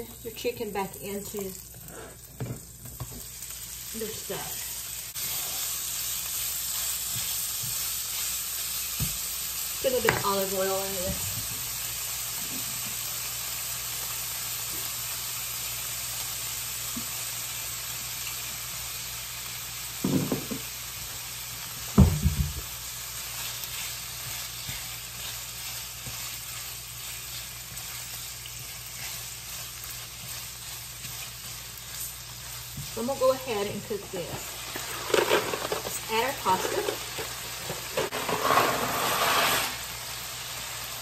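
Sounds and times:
chicken sizzling in frying pan: 0.0s - 41.0s
spatula scraping pan: 23.4s - 39.9s.

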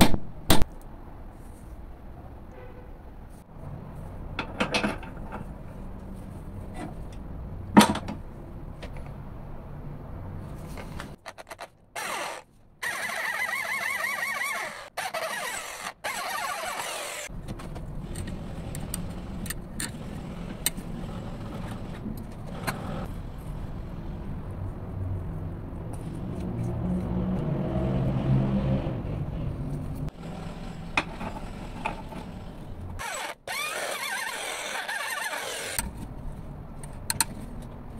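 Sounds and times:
drill boring into steel: 12.0s - 17.3s, 33.0s - 35.8s
motor hum: 12.0s - 17.3s, 30.1s - 35.8s.

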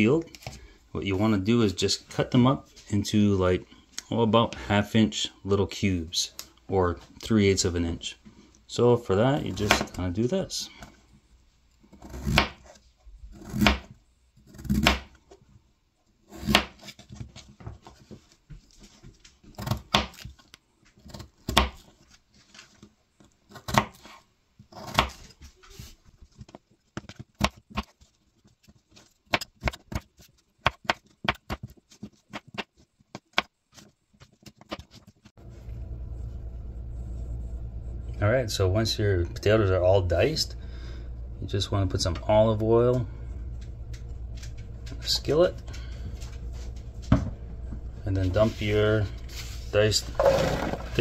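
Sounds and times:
knife cutting on plastic board: 11.9s - 15.2s, 16.3s - 17.1s.

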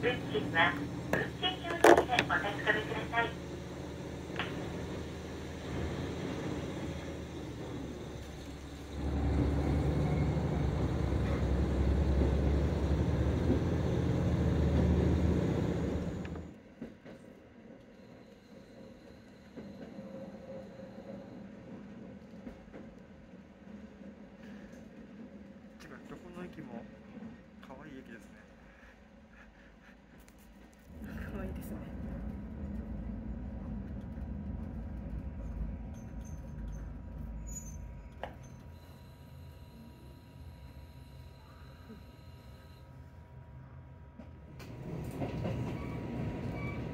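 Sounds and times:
railcar engine drone: 0.0s - 46.9s
train rolling noise: 0.0s - 46.9s
faint high squeaks: 35.9s - 39.0s.

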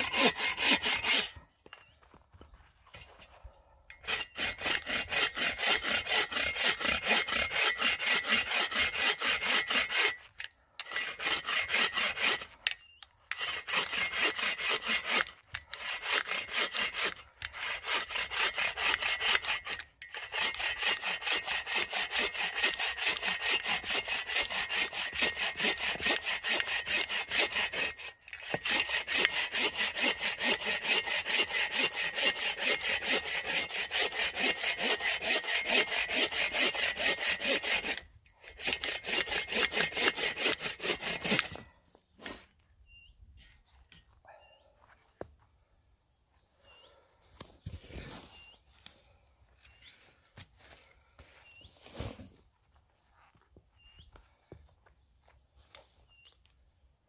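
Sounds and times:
bow saw cutting log: 0.0s - 1.4s, 4.0s - 10.2s, 10.8s - 12.7s, 13.3s - 42.5s.

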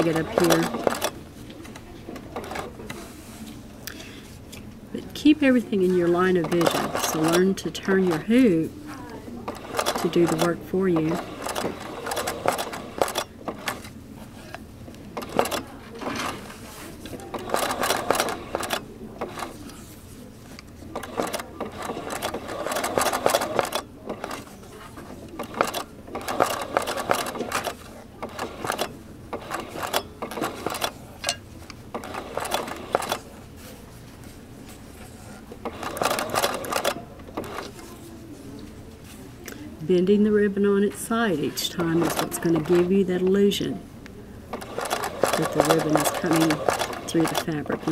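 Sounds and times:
sewing machine stitching: 0.0s - 1.2s, 6.2s - 8.4s, 9.5s - 13.9s, 15.2s - 16.5s, 17.3s - 19.6s, 20.9s - 24.5s, 25.4s - 31.0s, 31.9s - 33.2s, 35.6s - 37.7s, 41.8s - 42.9s, 44.5s - 47.9s.

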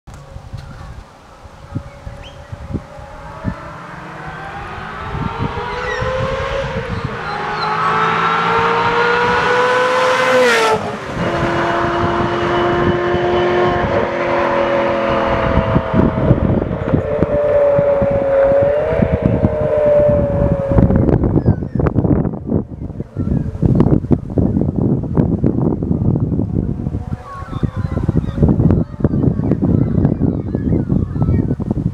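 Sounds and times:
sports car accelerating past: 2.3s - 21.4s.

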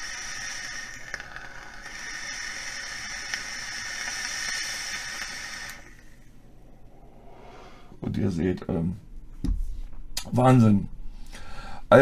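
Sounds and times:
air hissing: 0.0s - 6.2s
vape coil sizzling: 0.0s - 6.3s.

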